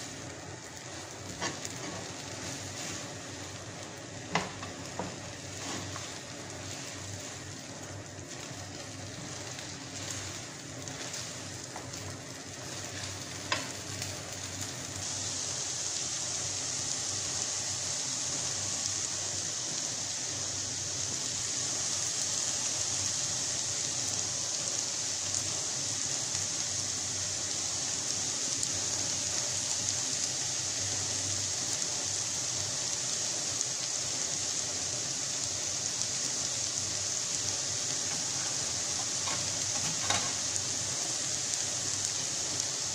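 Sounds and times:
noodles sizzling in a frying pan: 0.0 - 42.9
spatula scraping and stirring: 0.8 - 3.3, 4.3 - 7.4, 9.2 - 12.0.

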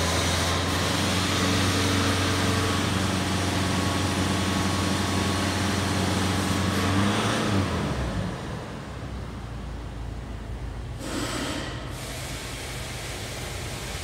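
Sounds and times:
diesel engine revving: 0.0 - 9.1.

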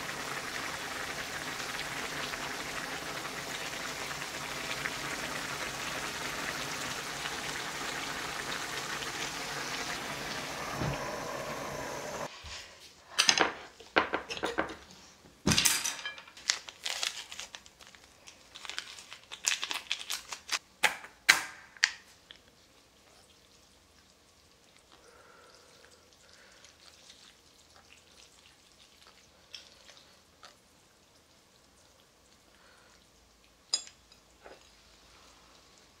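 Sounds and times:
broth bubbling in a pan: 0.0 - 12.3, 22.1 - 36.0
cookware clinking and knocking: 13.2 - 14.8.

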